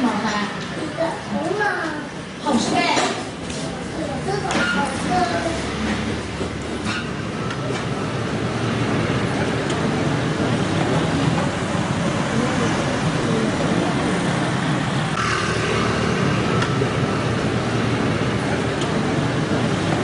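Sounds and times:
vehicle rumble: 3.4s - 20.0s.

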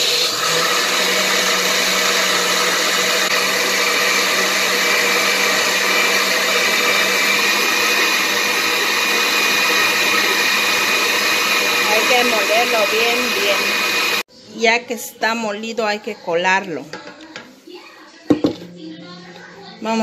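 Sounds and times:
blender motor hum: 0.0s - 14.3s.

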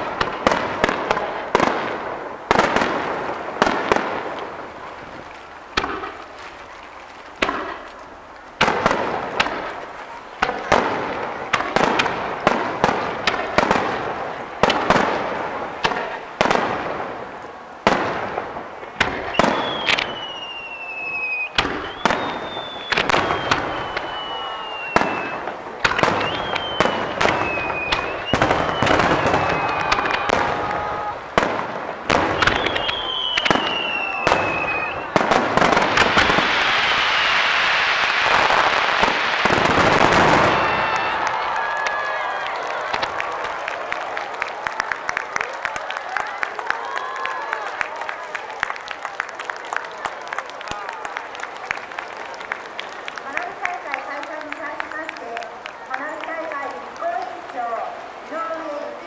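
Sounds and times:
firework crackle: 0.0s - 59.0s
fireworks bangs: 0.0s - 59.0s
falling firework whistles: 19.0s - 31.5s, 32.1s - 42.1s.

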